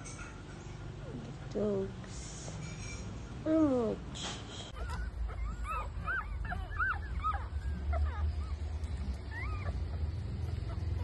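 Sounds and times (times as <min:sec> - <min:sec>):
low steady rumble: 0:00.0 - 0:11.0
puppies squeaking and whimpering: 0:02.6 - 0:11.0.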